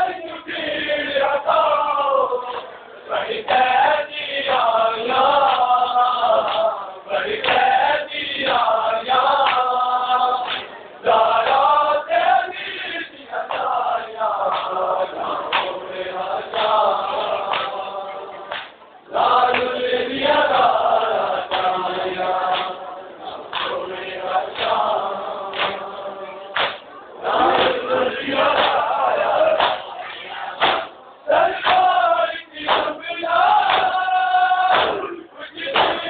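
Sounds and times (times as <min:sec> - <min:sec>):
men chanting in chorus: 0:00.0 - 0:36.0
hands slapping chests: 0:06.4 - 0:06.7, 0:07.4 - 0:07.7, 0:09.4 - 0:09.7, 0:10.4 - 0:10.8, 0:15.5 - 0:15.8, 0:17.5 - 0:17.8, 0:18.5 - 0:18.8, 0:21.5 - 0:21.8, 0:22.5 - 0:22.8, 0:23.5 - 0:23.8, 0:24.5 - 0:24.8, 0:25.5 - 0:25.8, 0:26.5 - 0:26.9, 0:27.5 - 0:27.8, 0:28.5 - 0:28.8, 0:29.6 - 0:29.9, 0:30.6 - 0:31.0, 0:31.6 - 0:31.9, 0:32.6 - 0:32.9, 0:33.6 - 0:34.0, 0:34.7 - 0:35.0, 0:35.7 - 0:36.0.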